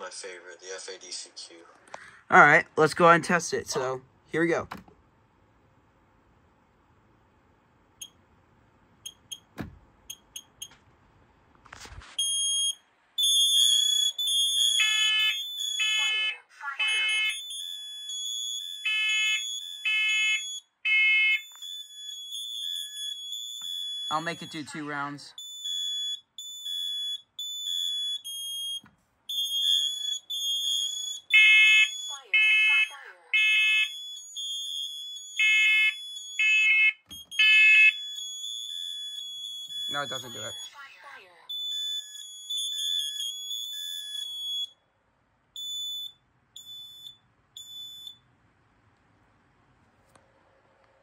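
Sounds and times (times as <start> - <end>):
smoke alarm high-pitched beeps: 9.0 - 10.8, 12.2 - 44.8, 45.6 - 48.2
deeper louder alarm beeping: 12.2 - 44.8.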